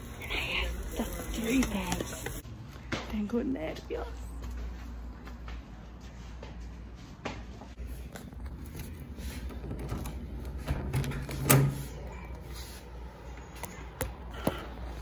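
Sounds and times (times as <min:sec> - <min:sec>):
door shutting: 0:09.8 - 0:12.0.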